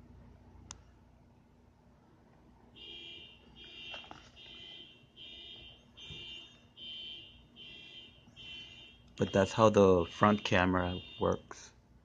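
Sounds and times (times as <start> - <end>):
electronic alarm beeping: 2.8 - 11.6.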